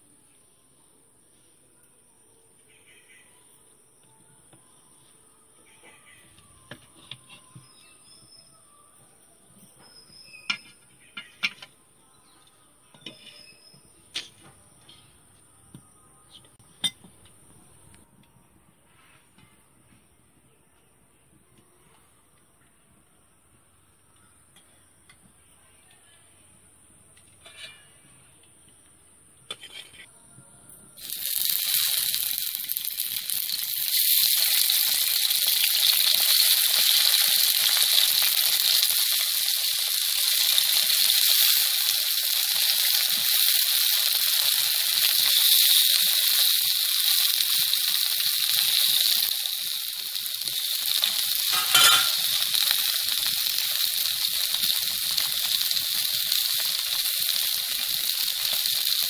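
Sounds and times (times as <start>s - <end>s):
vegetables sizzling in hot oil: 31.0s - 59.0s.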